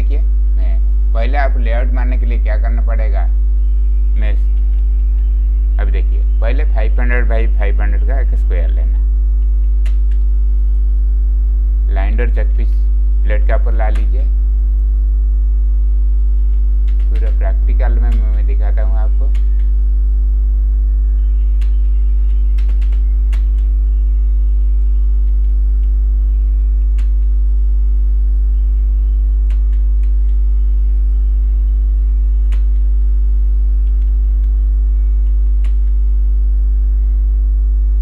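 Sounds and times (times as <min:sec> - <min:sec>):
electrical mains hum: 0:00.0 - 0:38.0
faint clicks: 0:09.4 - 0:10.3, 0:19.3 - 0:19.7, 0:21.6 - 0:23.8, 0:26.9 - 0:27.3, 0:29.4 - 0:30.4, 0:32.5 - 0:32.9, 0:33.8 - 0:34.6, 0:35.2 - 0:36.0.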